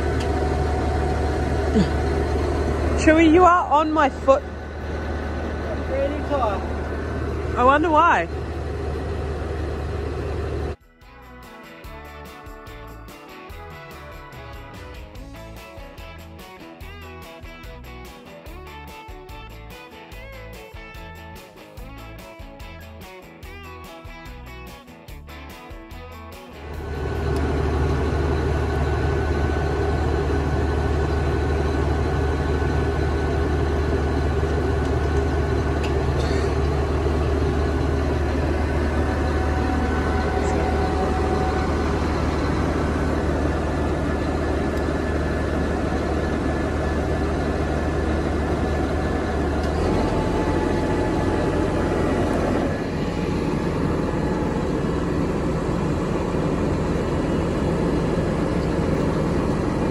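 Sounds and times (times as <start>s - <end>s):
tractor diesel engine idling: 0.0s - 10.8s, 26.6s - 59.9s.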